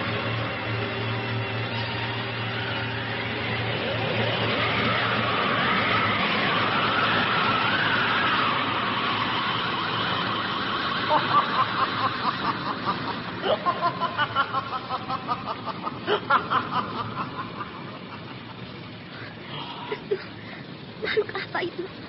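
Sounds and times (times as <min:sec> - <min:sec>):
eerie wailing tone: 0:00.0 - 0:14.4.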